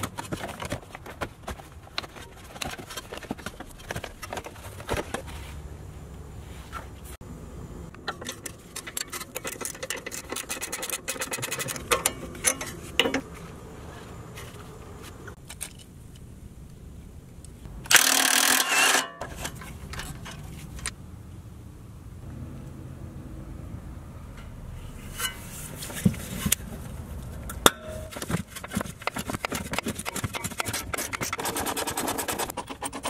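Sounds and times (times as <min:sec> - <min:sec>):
ratchet wrench clicking: 0:17.9 - 0:19.0.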